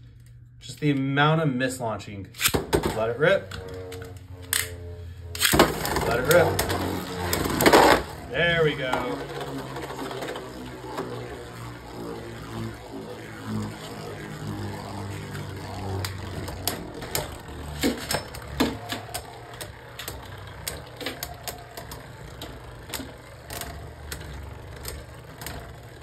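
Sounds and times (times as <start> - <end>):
spinning tops whirring: 2.4 - 26.0
plastic tops clacking together: 5.4 - 26.0.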